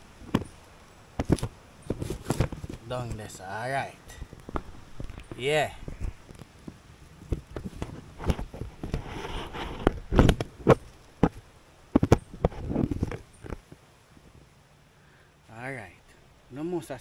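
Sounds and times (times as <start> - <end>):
twigs snapping: 1.2 - 3.3, 4.1 - 9.0.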